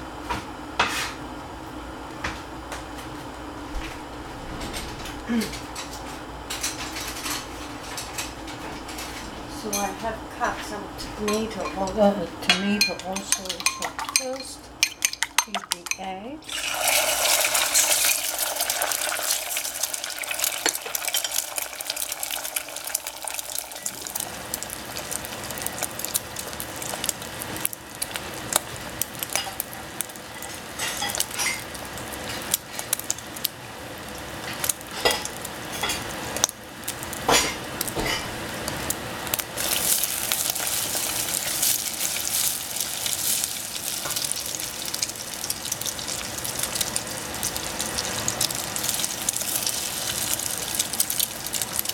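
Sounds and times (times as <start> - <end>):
eggs sizzling in hot oil: 12.8 - 51.9.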